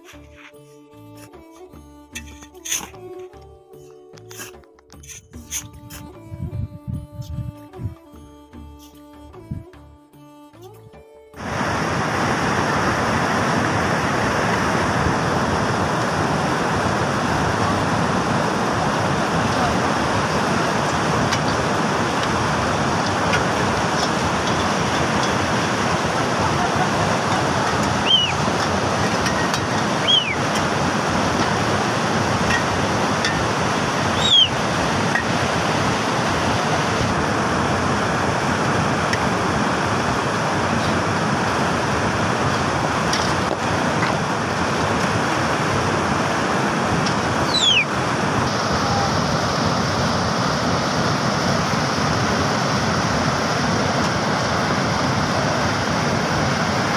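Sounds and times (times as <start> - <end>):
stream rushing over boulders: 11.4 - 56.9
short high falling whistles: 28.0 - 28.4, 30.0 - 30.4, 34.2 - 34.5, 47.5 - 47.9.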